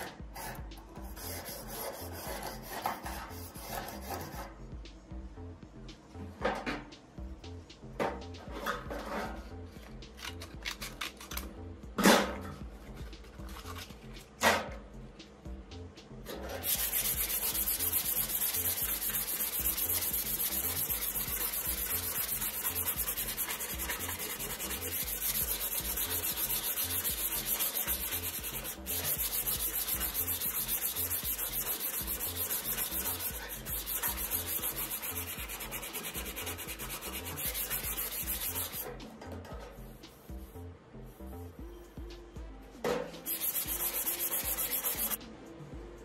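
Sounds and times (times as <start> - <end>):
sandpaper sanding wood: 0.0 - 4.4, 16.6 - 38.9, 43.3 - 45.2.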